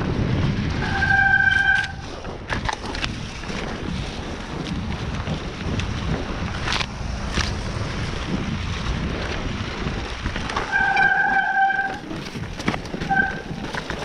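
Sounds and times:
bike clicks and rattles: 0:00.0 - 0:14.0
tyres rumbling over dirt: 0:00.0 - 0:14.0
wind buffeting microphone: 0:00.0 - 0:14.0
pitched squeal from bike: 0:00.8 - 0:02.0, 0:10.7 - 0:12.1, 0:13.0 - 0:13.6.

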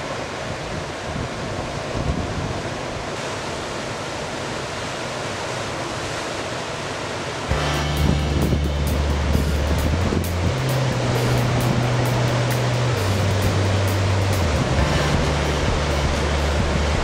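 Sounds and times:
wind rumble on microphone: 0:00.0 - 0:03.4, 0:07.5 - 0:17.0
ocean surf breaking: 0:00.0 - 0:17.0.

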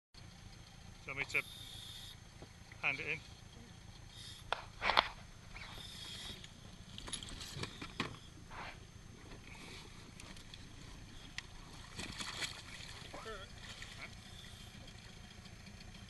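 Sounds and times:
steady low rumble: 0:00.2 - 0:16.0
diver splashing into sea: 0:11.8 - 0:14.0.

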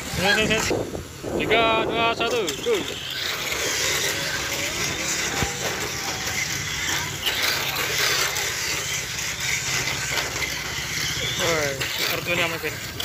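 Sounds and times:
toy cars whirring on track: 0:00.0 - 0:13.0.

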